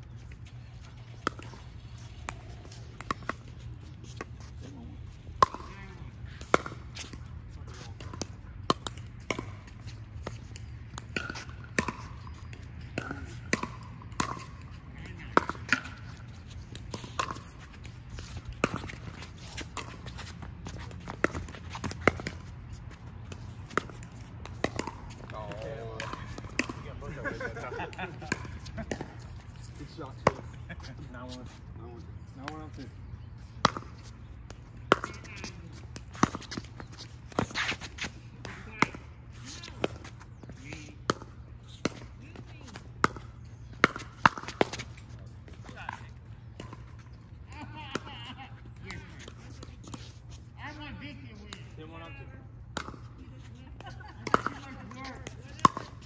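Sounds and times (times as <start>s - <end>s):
paddles striking pickleball: 0.2s - 4.6s, 5.4s - 31.6s, 32.3s - 51.9s, 52.7s - 56.0s.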